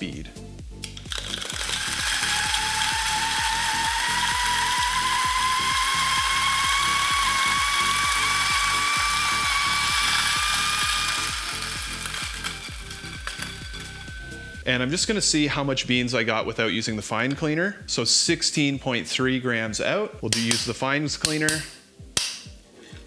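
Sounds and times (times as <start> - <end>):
grinding rattle: 0.8 - 14.7
coffee grinder motor whine: 0.8 - 14.9.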